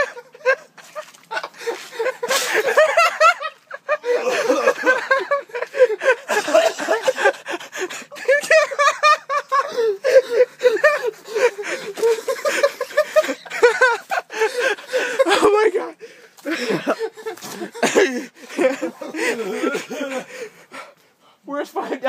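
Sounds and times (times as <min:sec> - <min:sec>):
person laughing hard: 0:00.0 - 0:15.6, 0:16.5 - 0:20.4
gasping breaths: 0:19.1 - 0:21.4.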